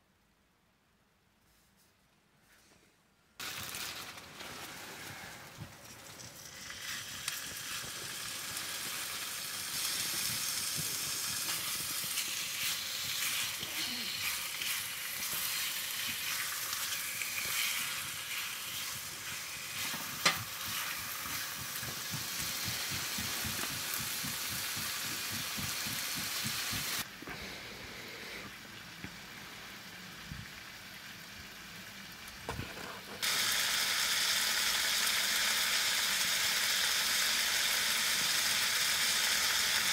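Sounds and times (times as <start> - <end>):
chicken sizzling in a pan: 3.4 - 27.1, 28.1 - 39.9
fork stirring in a pan: 9.8 - 27.0.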